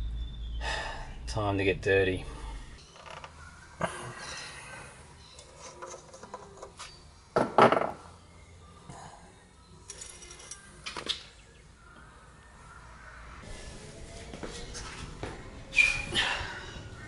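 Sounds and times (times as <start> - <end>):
tools knocking and clinking: 7.4 - 8.0.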